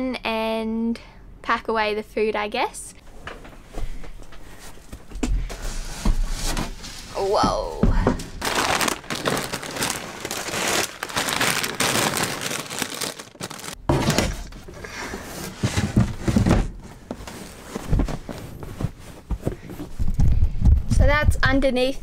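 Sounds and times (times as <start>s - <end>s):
plastic packaging crinkling: 8.4s - 13.8s.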